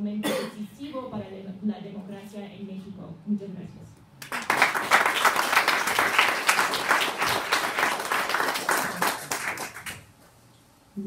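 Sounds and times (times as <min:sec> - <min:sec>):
small group applauding: 0:04.2 - 0:10.2.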